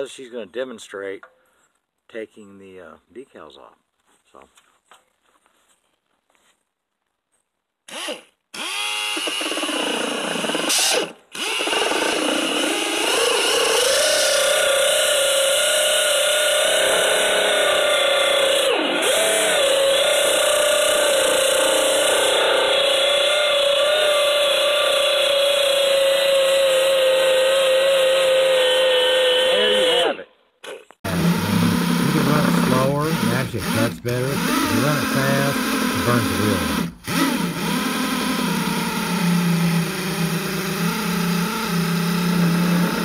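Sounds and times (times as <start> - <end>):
drill with eraser wheel on paint: 7.9 - 43.0
air tool high whine: 31.1 - 43.0.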